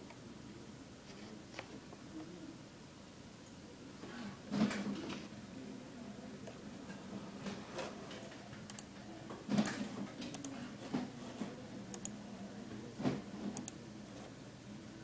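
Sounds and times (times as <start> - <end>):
computer mouse clicking: 8.6 - 8.9, 9.6 - 10.5, 11.9 - 12.2, 13.6 - 13.8.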